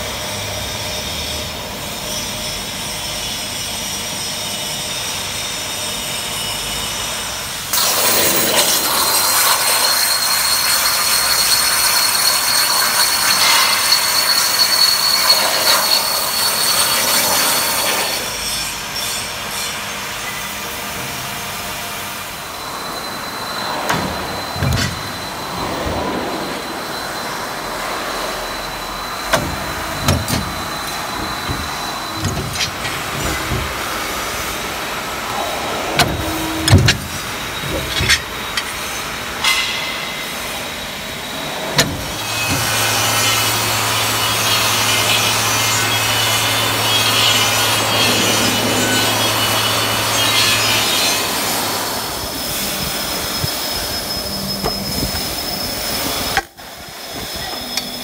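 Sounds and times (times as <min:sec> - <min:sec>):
sharp metal clanks: 0:35.9 - 0:40.8.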